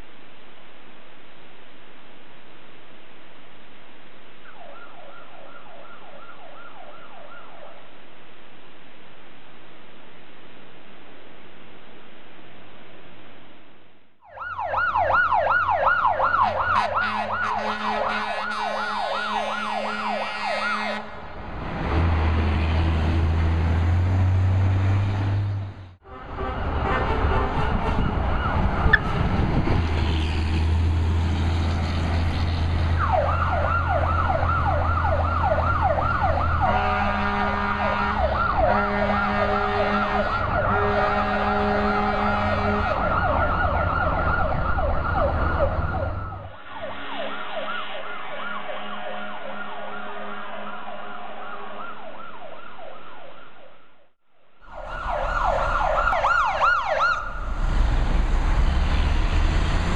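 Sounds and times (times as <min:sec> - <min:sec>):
electronic siren yelping: 0:14.2 - 0:21.0, 0:33.0 - 0:40.7, 0:42.8 - 0:53.8, 0:54.6 - 0:57.5
fire engine rumble: 0:14.9 - 0:46.6, 0:54.7 - 0:59.9
fire engine horn blasts: 0:16.4 - 0:21.3, 0:26.0 - 0:29.3, 0:36.6 - 0:43.4, 0:46.6 - 0:51.8.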